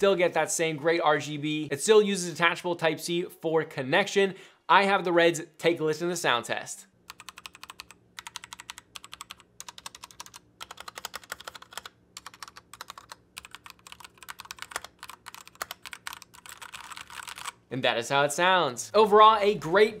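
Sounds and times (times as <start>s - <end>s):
mechanical keyboard typing: 7.1s - 17.6s.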